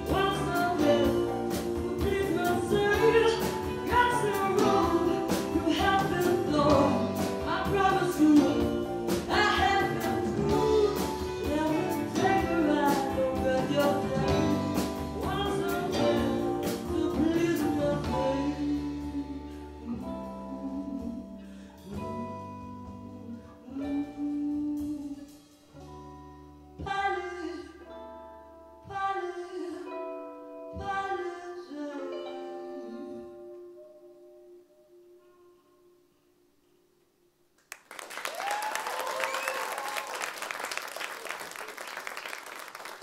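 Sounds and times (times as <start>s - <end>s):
woman singing: 0.0s - 25.9s, 26.8s - 28.2s, 28.8s - 34.0s
live band playing: 0.0s - 27.0s
drums: 0.0s - 27.3s.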